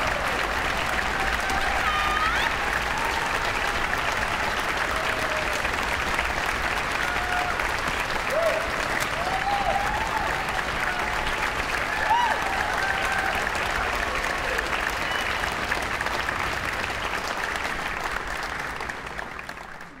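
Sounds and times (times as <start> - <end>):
cheering whoops: 0.0 - 15.8
audience applauding: 0.0 - 20.0.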